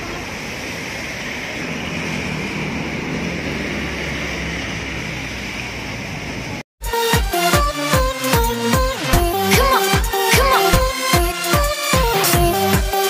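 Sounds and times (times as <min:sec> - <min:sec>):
street noise hiss: 0:00.0 - 0:06.6.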